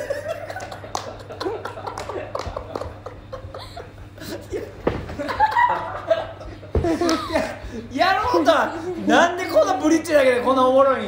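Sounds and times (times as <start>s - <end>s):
people laughing: 0.0s - 9.3s.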